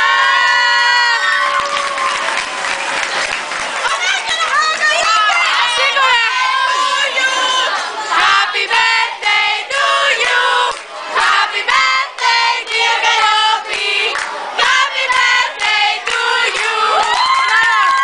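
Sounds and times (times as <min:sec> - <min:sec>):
girls singing together: 0:05.7 - 0:17.4.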